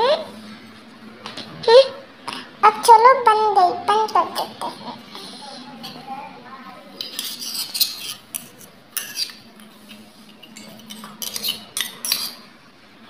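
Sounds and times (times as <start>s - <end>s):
metal tongs clinking on bowls: 7.0s - 12.4s.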